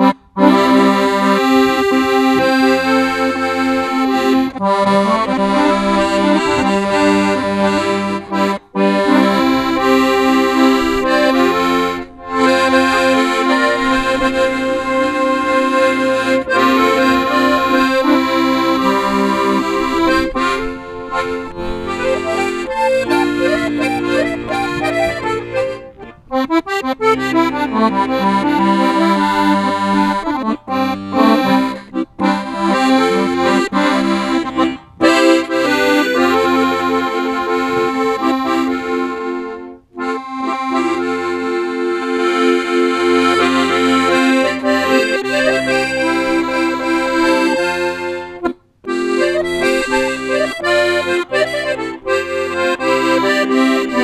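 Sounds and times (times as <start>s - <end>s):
piano accordion playing: 0.0s - 54.0s.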